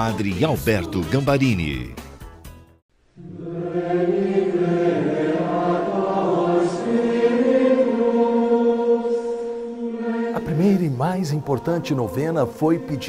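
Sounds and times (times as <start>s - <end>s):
choir singing long held notes: 3.2s - 13.0s.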